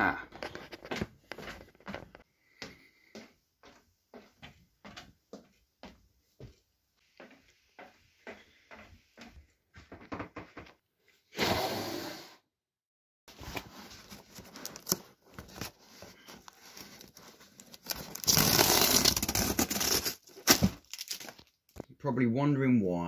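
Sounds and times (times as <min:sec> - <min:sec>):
packaging rustling: 0:13.3 - 0:21.8
packaging tearing: 0:14.2 - 0:15.8, 0:16.4 - 0:21.6.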